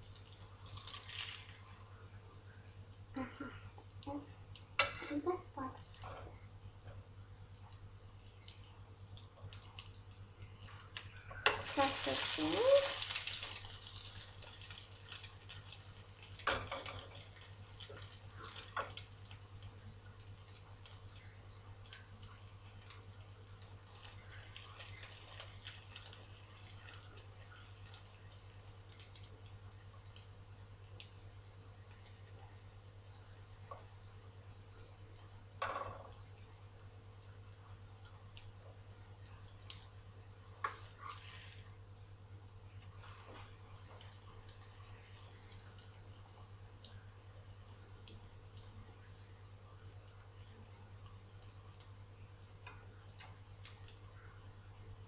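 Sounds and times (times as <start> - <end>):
oil sizzling in a frying pan: 0.0 - 1.9, 10.9 - 30.4.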